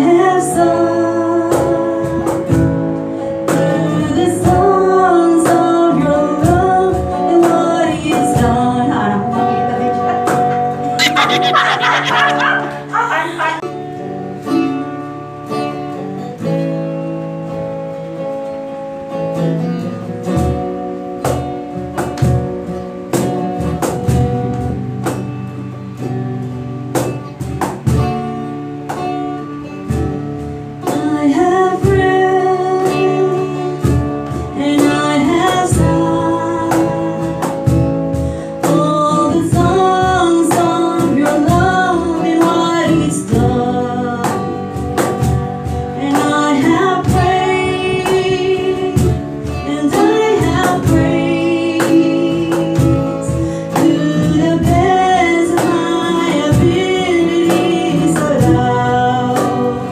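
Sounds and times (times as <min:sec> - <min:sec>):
woman singing: 0:00.0 - 0:13.8, 0:30.8 - 0:59.9
acoustic guitar strumming: 0:06.2 - 0:59.9
percussion beat: 0:10.3 - 0:13.7.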